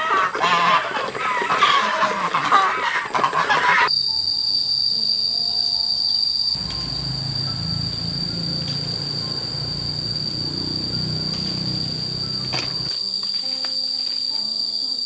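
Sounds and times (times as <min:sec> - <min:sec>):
insects chirring: 0:00.0 - 0:15.0
low rumble: 0:06.6 - 0:12.9.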